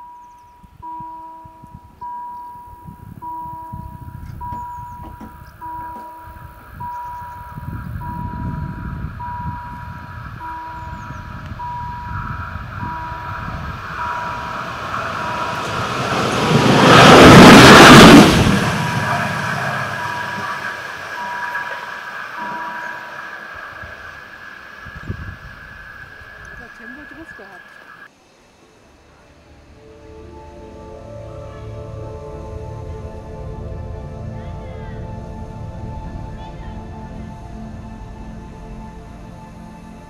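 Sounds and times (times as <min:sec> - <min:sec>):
level-crossing warning bell ringing: 0:00.0 - 0:28.1
railbus passing: 0:00.0 - 0:40.0.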